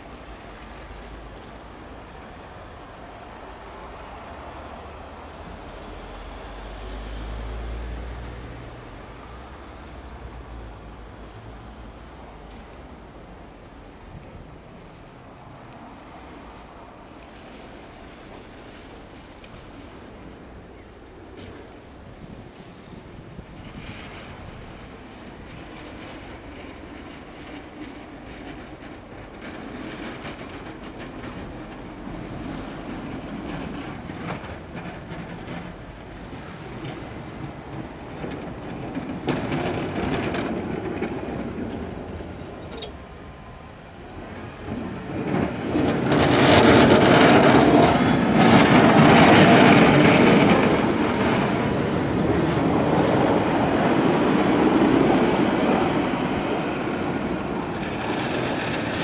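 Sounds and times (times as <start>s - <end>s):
plow truck passing scraping road: 0.0s - 59.0s
plow blade scraping snow: 44.2s - 59.0s.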